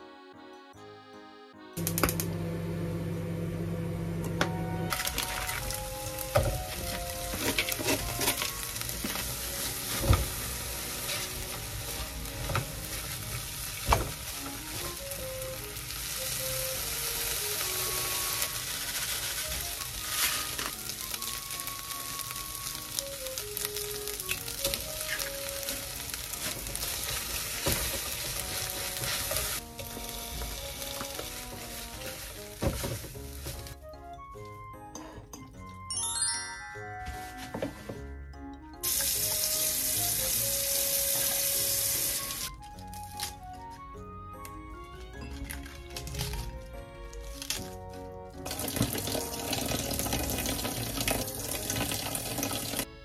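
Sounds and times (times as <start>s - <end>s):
fish sizzling in oil: 5.0s - 33.8s, 38.8s - 42.5s, 48.4s - 52.9s.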